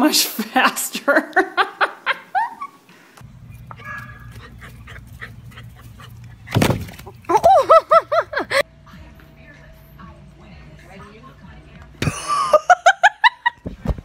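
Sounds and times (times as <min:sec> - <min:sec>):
dog yipping: 0:03.5 - 0:06.5
loud thud: 0:06.5 - 0:07.0.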